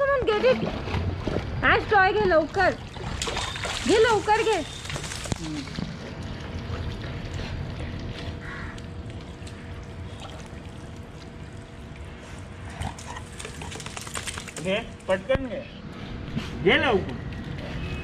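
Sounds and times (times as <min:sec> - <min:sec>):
pool water lapping: 0:00.0 - 0:15.1
small splashes and clicks: 0:02.9 - 0:06.7, 0:07.9 - 0:12.1, 0:12.8 - 0:15.1.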